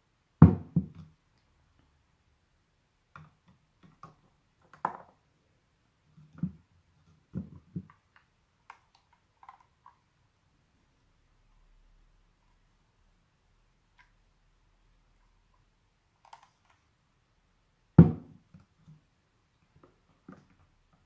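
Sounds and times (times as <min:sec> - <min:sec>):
plastic jug knocked on table: 0:18.0 - 0:18.3.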